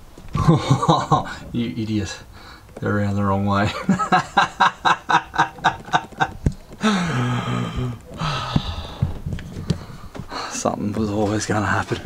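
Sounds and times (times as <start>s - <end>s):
man laughing: 0.3s - 1.6s, 3.5s - 8.4s
man groaning: 6.8s - 8.9s.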